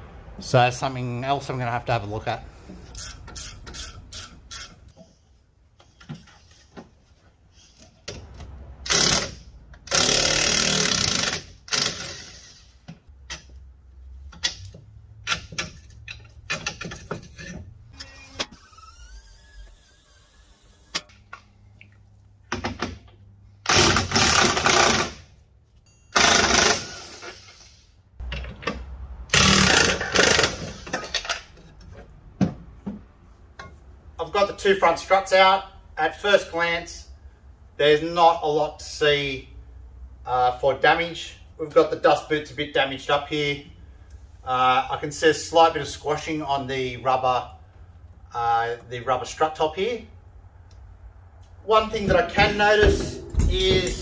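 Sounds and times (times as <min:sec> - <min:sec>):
impact wrench rattling: 0:08.8 - 0:12.6, 0:22.5 - 0:25.2, 0:26.1 - 0:27.5, 0:29.3 - 0:31.4.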